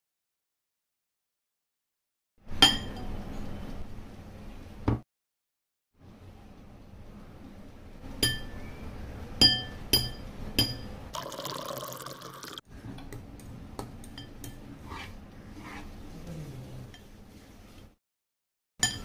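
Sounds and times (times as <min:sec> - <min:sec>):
glass bowls clinking: 0:09.4 - 0:12.6, 0:18.8 - 0:19.0
water pouring into bowl: 0:11.1 - 0:12.7.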